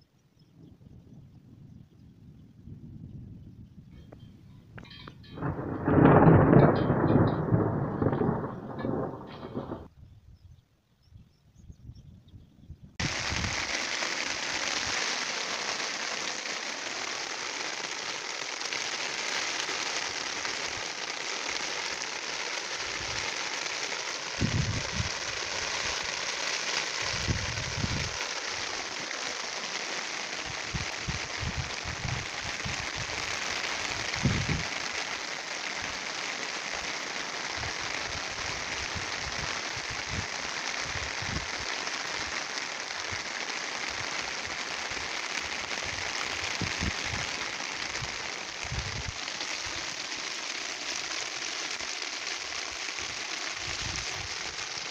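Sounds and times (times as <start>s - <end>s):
low bumps: 4.6s - 9.9s
rain falling on water: 4.8s - 9.9s, 13.0s - 54.9s.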